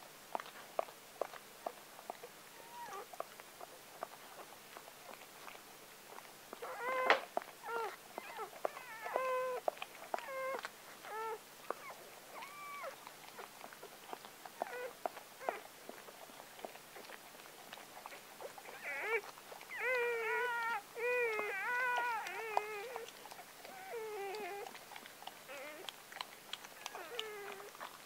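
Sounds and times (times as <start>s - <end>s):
dog licking puppy wet clicks: 0.4s - 28.0s
puppies crying in high squeals: 2.6s - 3.0s, 6.6s - 9.6s, 10.2s - 13.0s, 18.7s - 23.0s, 23.6s - 24.7s, 25.5s - 25.9s, 26.8s - 27.7s.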